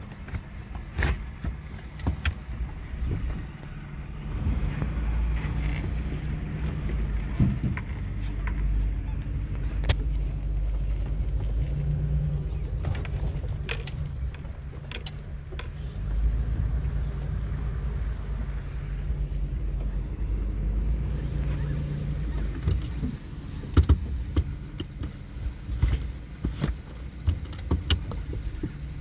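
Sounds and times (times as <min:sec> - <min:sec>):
body rattling over ruts: 0:00.0 - 0:29.0
vehicle engine and road rumble: 0:00.0 - 0:29.0.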